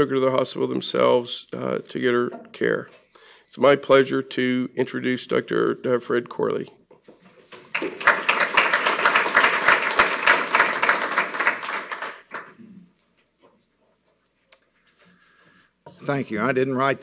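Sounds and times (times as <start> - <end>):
audience applauding: 7.5 - 12.6.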